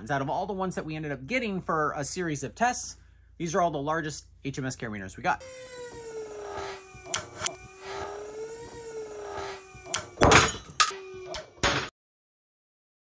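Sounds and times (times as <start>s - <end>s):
test rig whine: 5.4s - 11.6s
sharp clicks: 7.1s - 7.6s
snaps: 7.1s - 7.6s.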